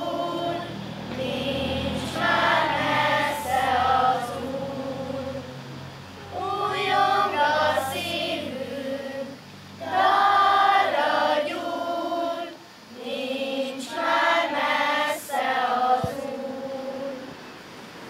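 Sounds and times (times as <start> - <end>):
choir singing a hymn: 0.0 - 17.6.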